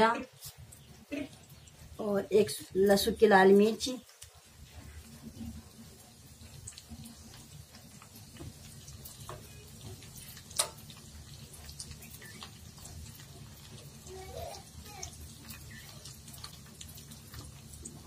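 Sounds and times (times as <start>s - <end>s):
spices sizzling in hot oil: 0.0s - 18.0s
small crackling pops: 3.8s - 4.4s, 6.4s - 18.0s.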